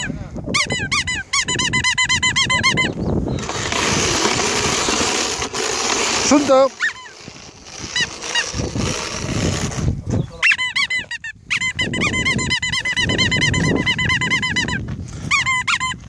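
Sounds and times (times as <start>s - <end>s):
squeaky dog toy squeaking: 0.0s - 3.0s, 10.4s - 16.0s.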